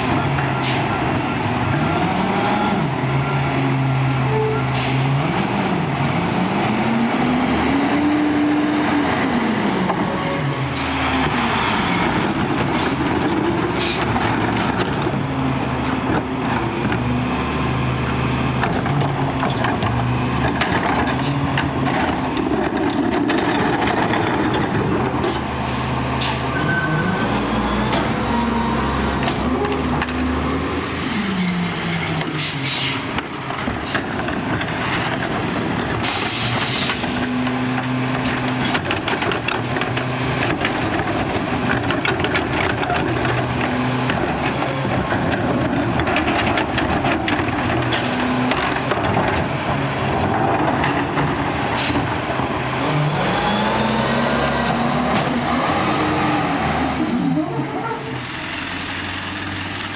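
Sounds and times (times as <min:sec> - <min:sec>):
air brakes hissing: 0:32.4 - 0:33.1.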